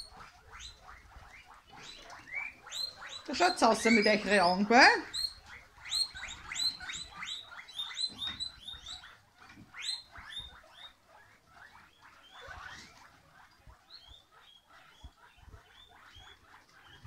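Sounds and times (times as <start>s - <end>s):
guinea pigs wheeking: 0.0s - 17.0s.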